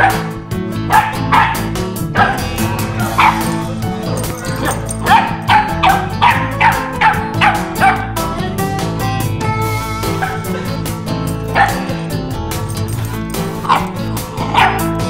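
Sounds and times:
background music: 0:00.0 - 0:15.0
puppy yapping: 0:00.9 - 0:08.1, 0:10.1 - 0:10.7, 0:11.5 - 0:12.1, 0:13.0 - 0:15.0.

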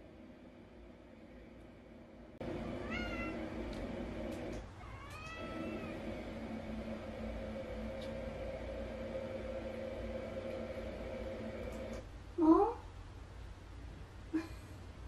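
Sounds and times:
steady background hum: 0:00.0 - 0:15.0
cat meowing: 0:02.8 - 0:03.4, 0:04.8 - 0:06.0.

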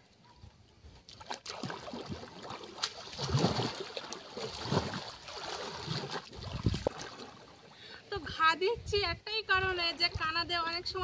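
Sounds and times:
water splashing and sloshing: 0:00.6 - 0:07.9.

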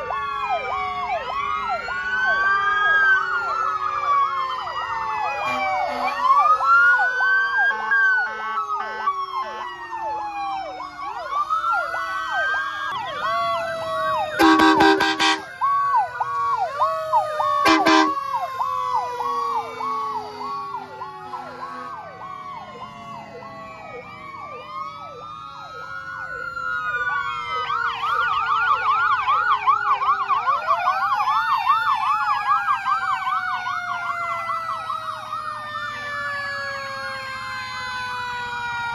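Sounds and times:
sirens yelping and wailing: 0:00.0 - 0:38.9
air horn blasts: 0:05.4 - 0:06.2, 0:14.4 - 0:15.5, 0:17.6 - 0:18.2.

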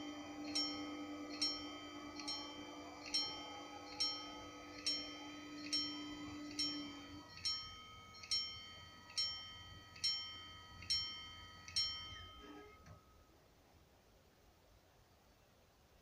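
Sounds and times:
steady motor hum: 0:00.0 - 0:12.8
level crossing bell ringing: 0:00.0 - 0:13.3.

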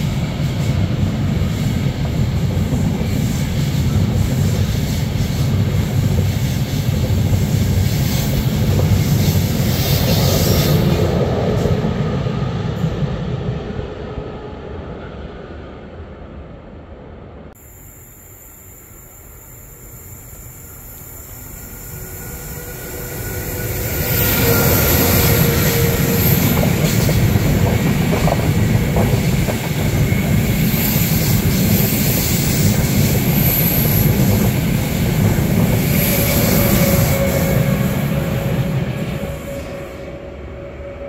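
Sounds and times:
train wheels rumbling on rails: 0:00.0 - 0:16.0, 0:19.2 - 0:41.0
high-pitched wheel squeal: 0:21.6 - 0:26.9, 0:35.6 - 0:41.0.

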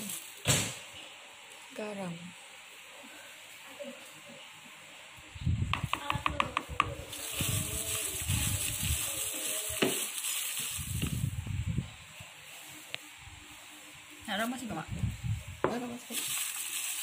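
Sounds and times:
plastic crinkling: 0:00.0 - 0:01.1, 0:07.0 - 0:11.4, 0:15.7 - 0:17.0.

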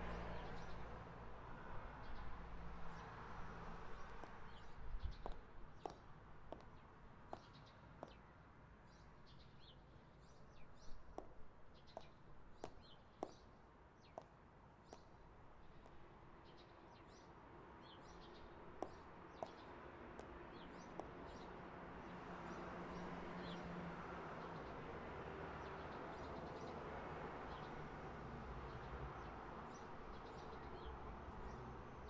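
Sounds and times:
boot heels on asphalt: 0:03.9 - 0:08.2, 0:10.8 - 0:16.1, 0:18.0 - 0:21.6
small birds chirping: 0:04.0 - 0:21.6.

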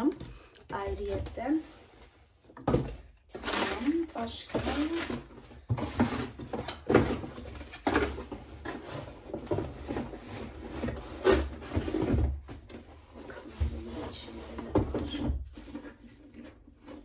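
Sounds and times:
plastic packaging rustling: 0:00.9 - 0:17.0.

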